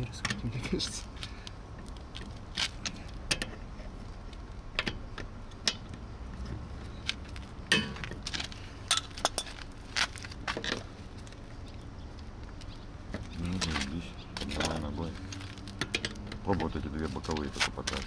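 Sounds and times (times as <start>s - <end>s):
metal tools clinking: 14.4s - 16.7s.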